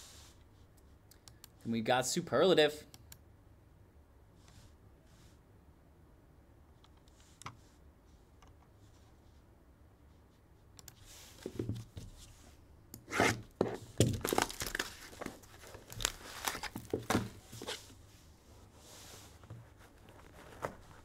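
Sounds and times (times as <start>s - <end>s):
packaging ripping and crinkling: 14.0s - 17.3s.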